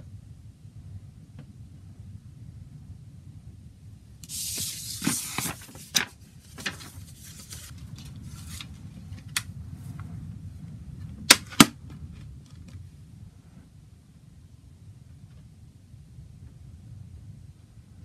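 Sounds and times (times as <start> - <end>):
steady low hum: 0.0 - 18.0
paper booklet rustling: 4.2 - 9.4.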